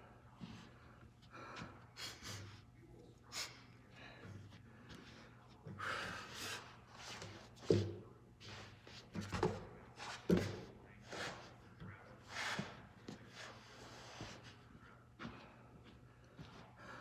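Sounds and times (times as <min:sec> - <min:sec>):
person breathing hard: 0:00.0 - 0:07.4, 0:12.2 - 0:17.0.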